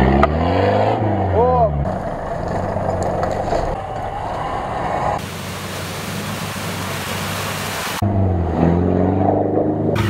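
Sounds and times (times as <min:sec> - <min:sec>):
off-road engines running under load: 0:00.0 - 0:07.1
vehicle ploughing through mud: 0:00.0 - 0:10.0.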